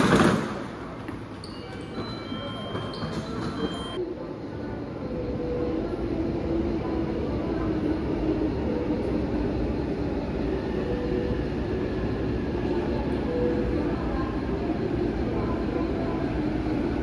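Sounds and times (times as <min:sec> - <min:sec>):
train wheels rumbling: 0:00.0 - 0:04.0.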